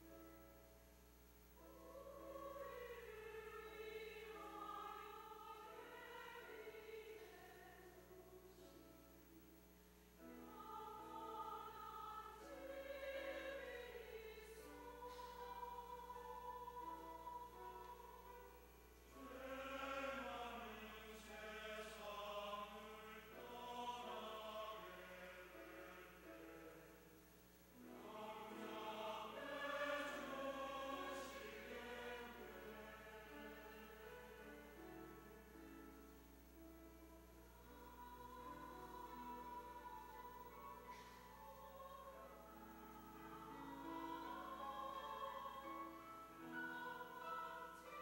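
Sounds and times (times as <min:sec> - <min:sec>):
soft held accompaniment notes: 0:00.0 - 0:48.0
choir singing a hymn: 0:01.6 - 0:09.1, 0:10.2 - 0:48.0.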